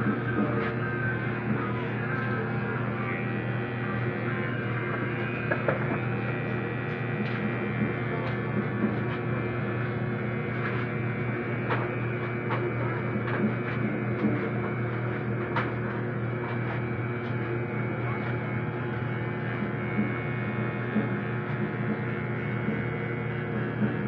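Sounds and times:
electric hair clipper buzzing: 0:00.0 - 0:24.0.

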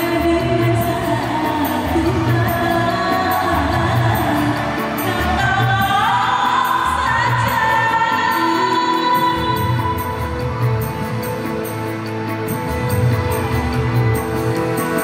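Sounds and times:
woman singing into microphone: 0:00.0 - 0:11.2.

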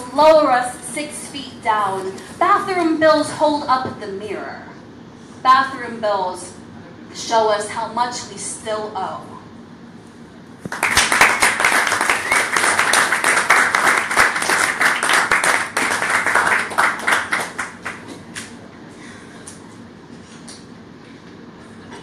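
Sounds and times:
small audience applauding: 0:10.7 - 0:18.5.

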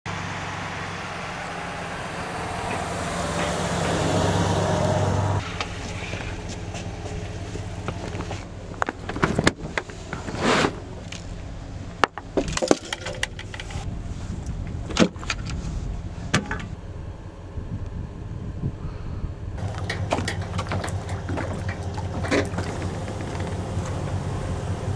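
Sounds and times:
vehicle engine and tyre noise: 0:00.0 - 0:24.9
gear knocking and clattering: 0:05.4 - 0:10.4, 0:19.6 - 0:24.3.

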